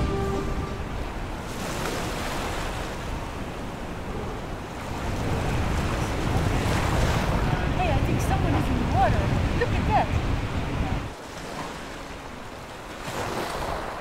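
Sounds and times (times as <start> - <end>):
wind on microphone: 0.0 - 11.2
waves washing onto beach: 0.0 - 14.0.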